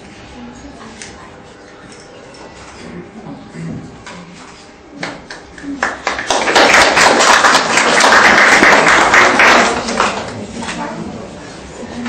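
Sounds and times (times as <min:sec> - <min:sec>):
audience applauding: 0:05.3 - 0:10.4.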